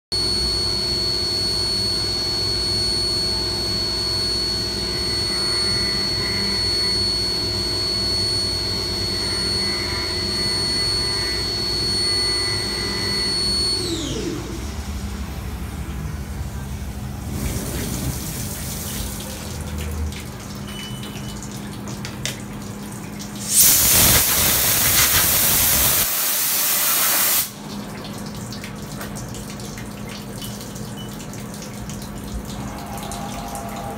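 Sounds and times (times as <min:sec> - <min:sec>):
milling spindle whine: 0:00.2 - 0:18.6, 0:32.6 - 0:33.9
wet rushing: 0:16.8 - 0:20.6
coolant spraying hiss: 0:17.1 - 0:19.3, 0:23.4 - 0:27.5.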